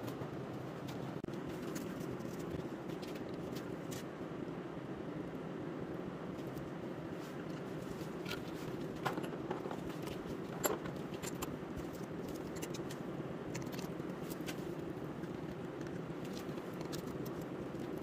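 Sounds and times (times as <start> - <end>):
steady background hum: 0.0 - 18.0
tools clicking and clinking: 8.3 - 11.6.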